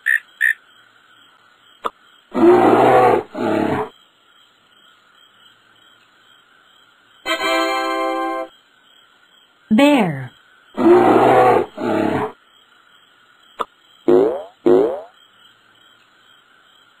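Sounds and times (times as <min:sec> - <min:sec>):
cricket chirps: 0:00.0 - 0:17.0
bear growling: 0:02.3 - 0:03.9, 0:10.8 - 0:12.4.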